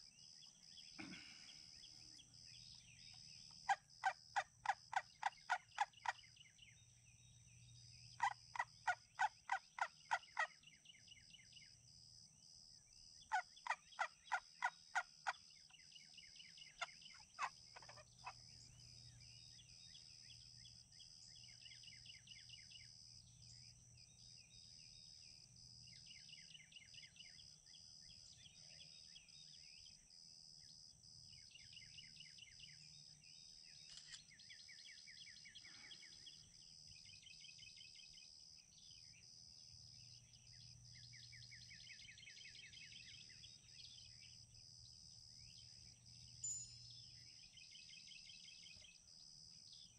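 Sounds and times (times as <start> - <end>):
small birds chirping: 0.0 - 49.9
wild turkey yelping: 3.6 - 6.2, 8.2 - 10.5, 13.3 - 15.4, 16.7 - 18.4.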